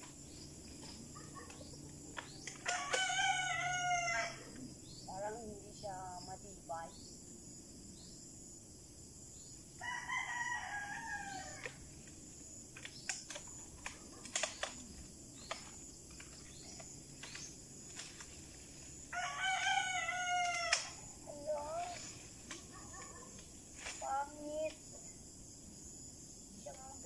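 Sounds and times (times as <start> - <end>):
rooster crowing: 2.6 - 4.6, 9.8 - 11.8, 19.1 - 21.0
sharp clicks: 12.7 - 18.1.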